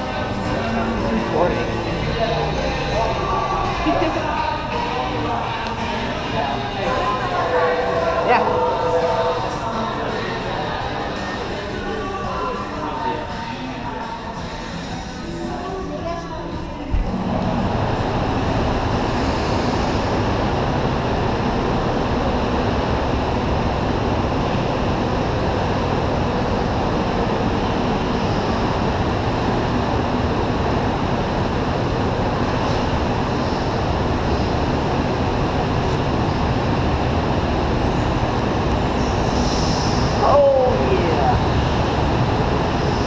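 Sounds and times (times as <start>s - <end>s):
echoing go-kart engines din: 0.0s - 15.6s.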